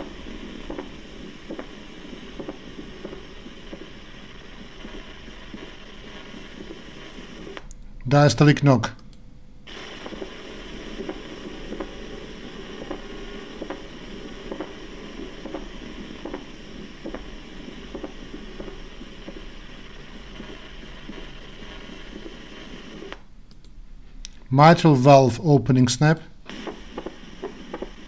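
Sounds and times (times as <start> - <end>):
heartbeat with diastolic knock: 0.0 - 7.6, 9.7 - 23.1, 26.5 - 28.0
recording hiss: 0.0 - 9.0, 9.7 - 28.0.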